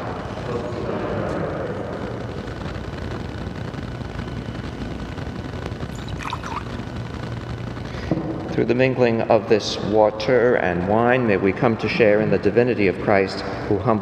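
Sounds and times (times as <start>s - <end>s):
low hum and hiss: 0.0s - 14.0s
liquid trickling into a chalice: 5.9s - 6.8s.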